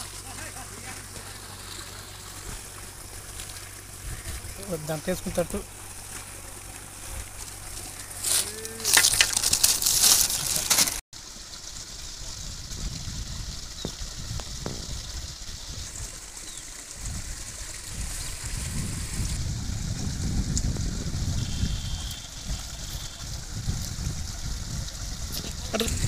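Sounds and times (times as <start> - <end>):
outdoor background hiss: 0.0 - 12.4
wind rumble on microphone: 2.4 - 4.6, 12.0 - 26.0
close rustling and handling noise: 6.0 - 11.0.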